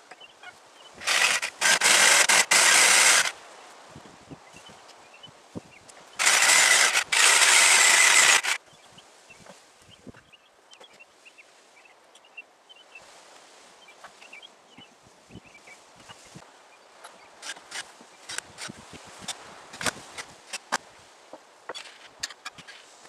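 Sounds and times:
power saw cutting wood: 1.0s - 3.4s, 6.2s - 8.6s, 17.4s - 18.7s.

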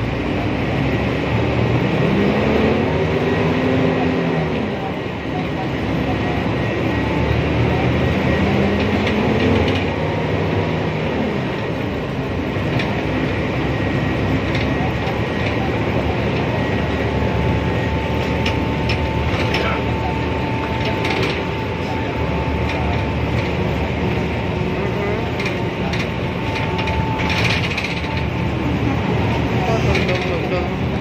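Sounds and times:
bus engine and road rumble: 0.0s - 31.0s
bus fittings rattling and clicking: 8.0s - 10.6s, 12.4s - 31.0s.

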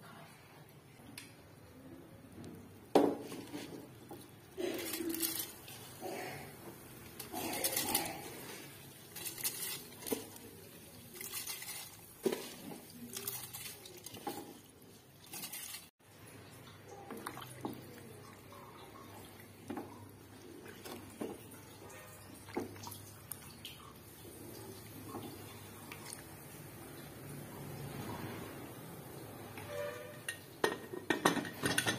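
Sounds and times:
spatula stirring liquid: 3.2s - 15.9s
bowl scraping: 4.6s - 6.5s, 7.1s - 15.9s, 29.6s - 31.9s
rice pattering into liquid: 6.7s - 15.9s.

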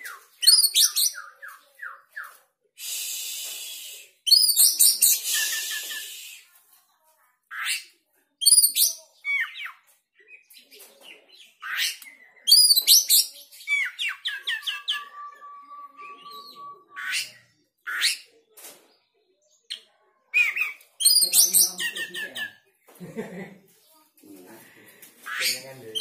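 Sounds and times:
bird singing whistles and chirps: 0.0s - 6.5s, 8.4s - 10.4s, 11.4s - 18.2s, 20.4s - 22.6s.

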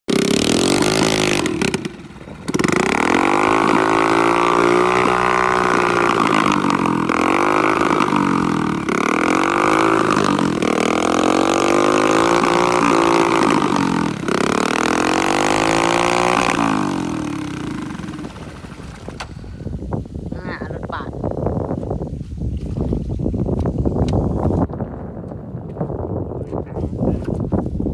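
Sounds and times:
motorbike engine revving: 0.0s - 19.7s.

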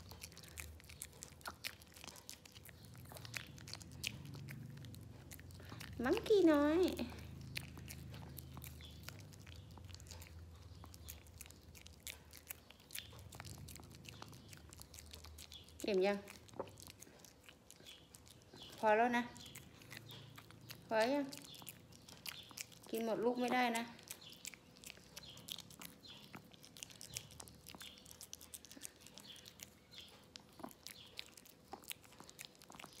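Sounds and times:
dog licking and chewing: 0.0s - 33.0s
faint low hum: 0.0s - 33.0s.

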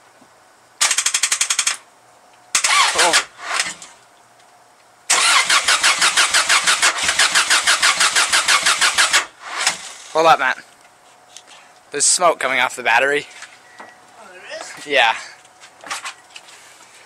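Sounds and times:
car engine cranking: 2.6s - 3.9s, 5.1s - 10.2s.

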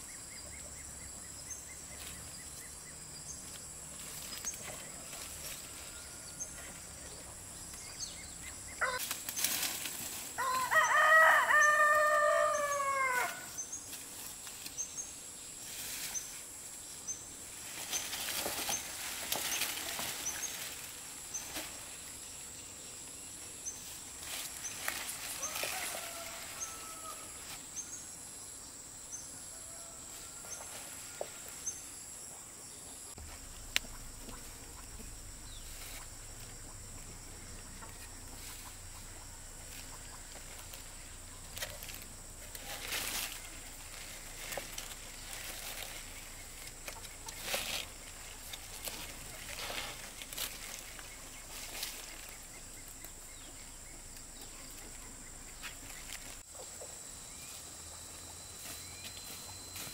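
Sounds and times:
bird chirping: 0.0s - 5.1s, 6.0s - 9.0s, 32.7s - 42.1s, 50.5s - 59.9s
rustling or scraping bursts: 39.7s - 52.4s.

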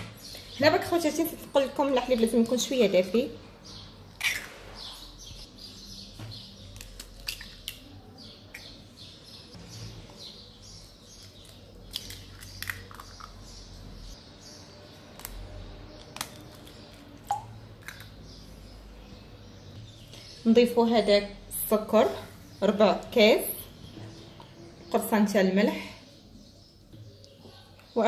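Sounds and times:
eggs cracking on a glass bowl: 6.8s - 7.8s, 11.4s - 13.4s.

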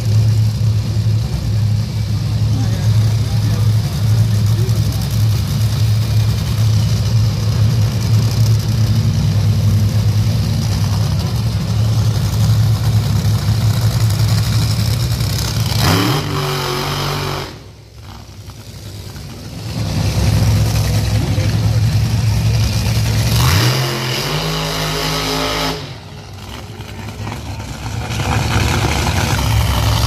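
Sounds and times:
racing engine idling and revving: 0.0s - 30.0s.

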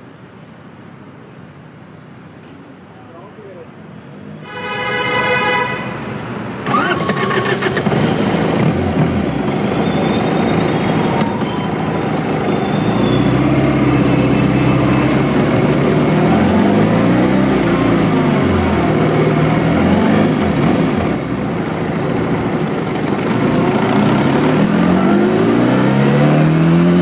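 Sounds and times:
motorcycle engine starting and idling: 6.6s - 9.6s.

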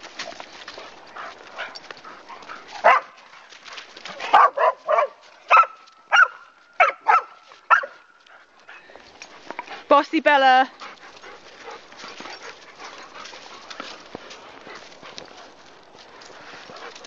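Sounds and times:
dog barking: 2.8s - 3.2s, 4.2s - 8.0s.

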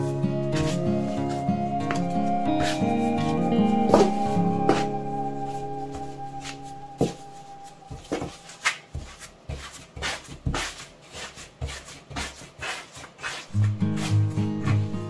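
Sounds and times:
dough scraper scraping mat: 0.5s - 1.4s, 8.2s - 15.0s
dough slapped and pressed by hand: 8.6s - 14.9s.

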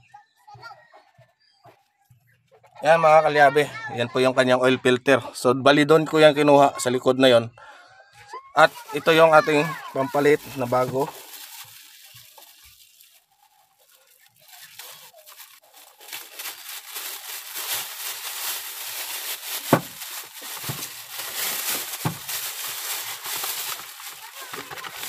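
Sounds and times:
packaging crinkling and tearing: 8.6s - 25.0s.

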